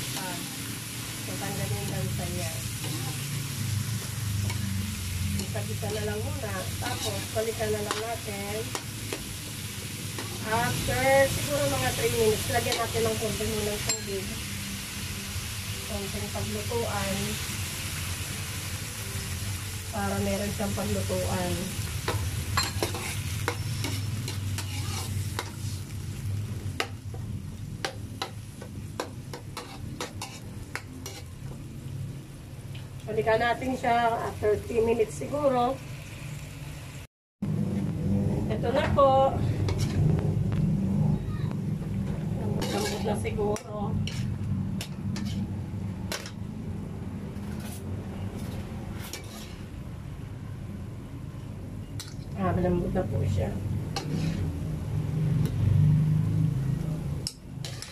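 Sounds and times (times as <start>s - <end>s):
food sizzling: 0.0s - 37.1s, 38.5s - 50.0s, 51.9s - 57.9s
metal ladle scraping a wok: 2.6s - 9.3s, 22.1s - 26.0s, 29.0s - 31.5s, 39.4s - 40.2s, 42.1s - 46.4s, 47.3s - 49.8s, 53.9s - 54.7s, 57.2s - 57.9s
low hum: 37.4s - 48.4s.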